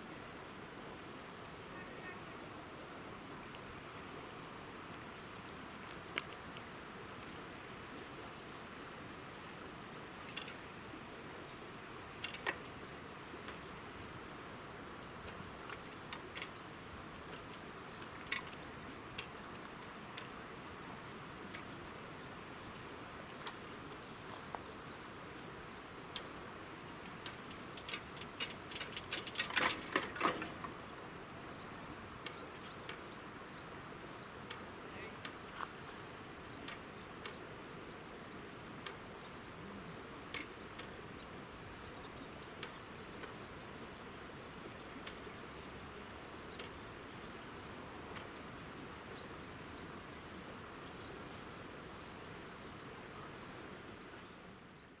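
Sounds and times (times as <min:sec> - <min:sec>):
insects buzzing: 0:00.0 - 0:55.0
faint ticks: 0:03.4 - 0:03.8, 0:05.7 - 0:08.6, 0:10.2 - 0:11.2, 0:12.1 - 0:13.7, 0:15.2 - 0:21.9, 0:22.5 - 0:30.8, 0:31.5 - 0:37.5, 0:38.7 - 0:39.5, 0:40.1 - 0:44.0, 0:44.8 - 0:49.9
clicks and rattles: 0:12.2 - 0:12.7, 0:27.1 - 0:30.8.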